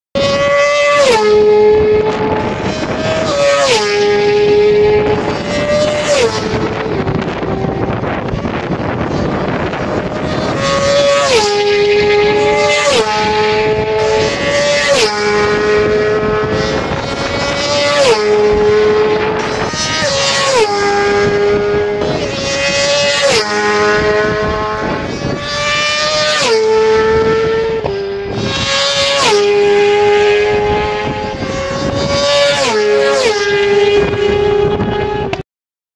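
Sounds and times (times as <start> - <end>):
racing motorcycles passing: 0.2 - 35.4.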